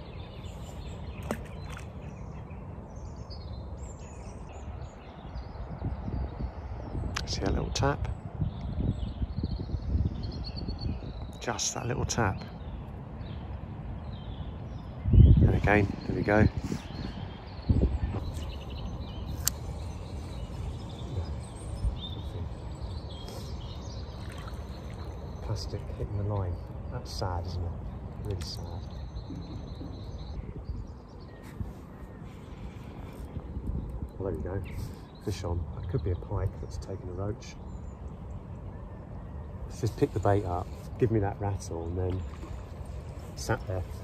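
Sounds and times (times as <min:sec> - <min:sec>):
faint bird chirps: 0:12.4 - 0:44.0.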